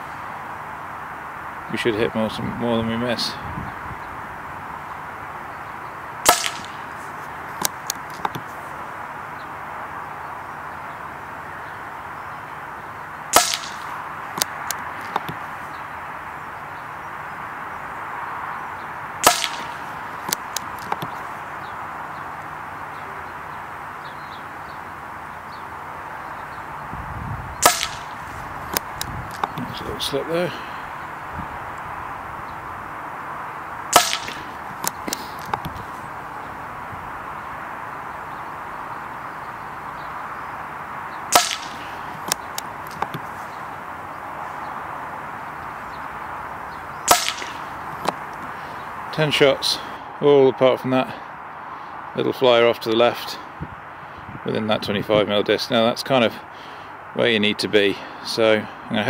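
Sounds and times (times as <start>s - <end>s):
steady background hiss: 0.0s - 59.0s
air rifle shot crack: 6.2s - 8.5s, 13.3s - 15.5s, 19.2s - 21.2s, 27.6s - 29.7s, 33.9s - 35.8s, 41.3s - 43.3s, 47.0s - 48.3s
quiet clicks: 6.4s - 8.6s, 13.4s - 15.4s, 19.2s - 21.2s, 28.7s - 29.8s, 34.0s - 35.9s, 41.4s - 43.4s, 47.1s - 48.6s
faint clicks: 19.4s - 21.2s, 34.2s - 35.9s.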